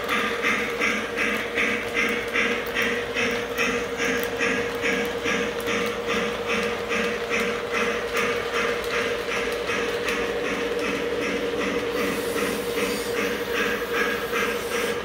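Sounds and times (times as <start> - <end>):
model train chuffing: 0.0 - 15.0.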